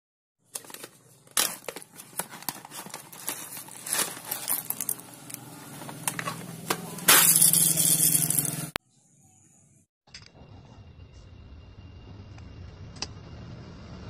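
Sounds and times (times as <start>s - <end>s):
bag crinkling and rustling: 0.5s - 6.4s.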